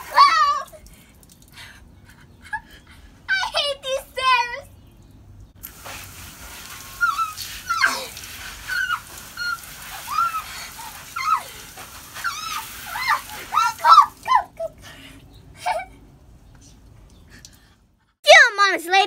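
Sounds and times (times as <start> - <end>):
garden hose spray hissing: 5.6 - 14.7
girl squealing: 7.0 - 11.5, 12.2 - 14.8.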